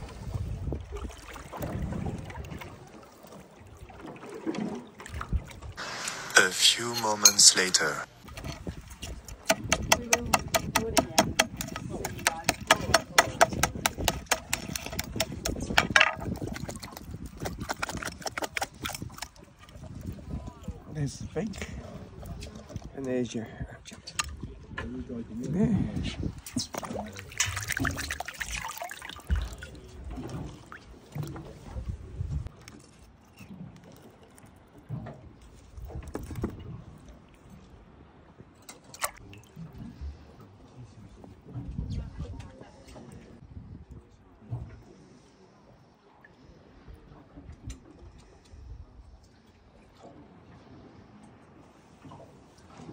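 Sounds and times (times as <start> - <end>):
water rumbling around boat: 0.0 - 52.9
knife clicking on sea urchin shell: 9.5 - 16.0.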